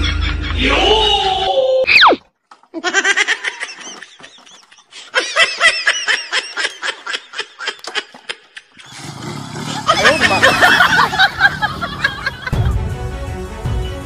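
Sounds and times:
high-pitched laughter: 2.7s - 8.9s, 9.8s - 12.7s.

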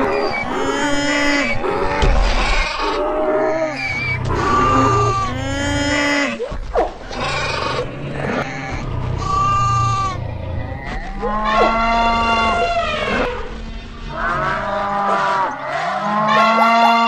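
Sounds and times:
steady low rumble: 0.0s - 15.7s
animals giving drawn-out calls: 0.0s - 17.0s
sharp sweeping animal cries: 7.1s - 17.0s.

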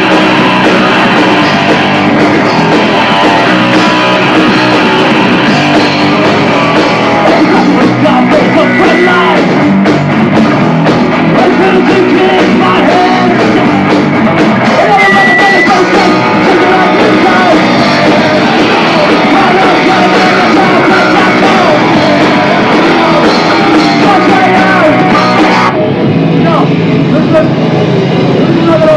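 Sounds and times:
punk rock band playing live: 0.0s - 28.9s
shouted vocals: 14.6s - 25.8s.

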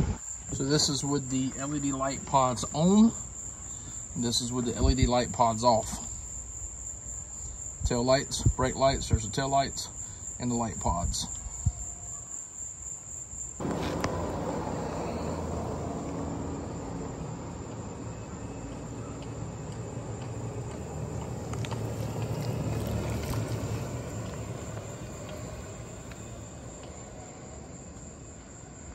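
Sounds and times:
crickets trilling: 0.0s - 28.9s
vehicle droning on road: 13.6s - 28.9s.

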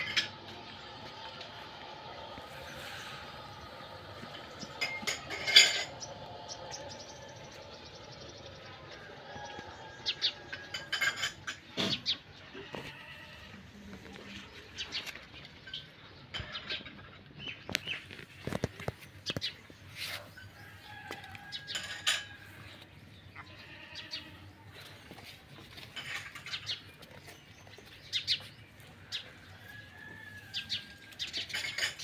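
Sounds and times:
goats bleating: 12.4s - 13.8s, 23.4s - 24.6s.

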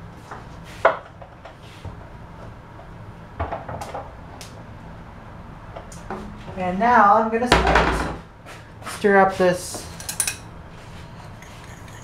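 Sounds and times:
sharp knocks in kitchen: 7.5s - 8.2s.

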